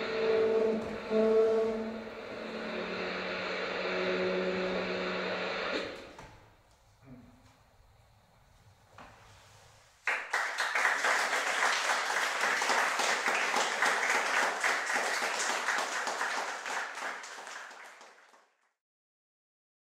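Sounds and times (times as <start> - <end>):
audience applauding: 10.0 - 18.6.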